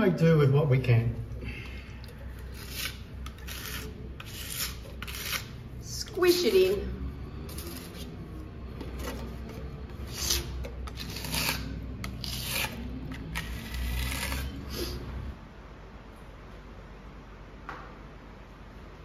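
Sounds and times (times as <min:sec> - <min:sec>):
putty knife scraping wall: 0:02.4 - 0:05.6, 0:07.5 - 0:15.0.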